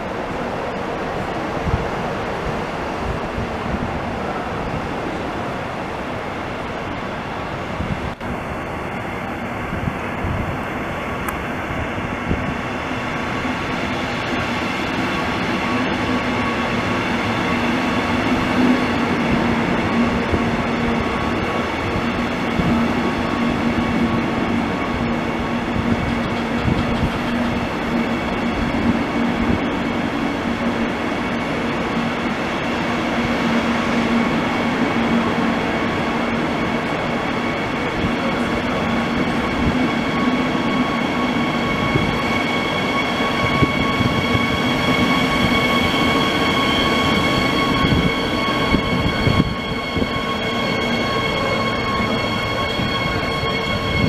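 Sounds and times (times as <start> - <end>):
train hum: 0.0 - 54.0
train wheels rumbling on rail: 0.0 - 54.0.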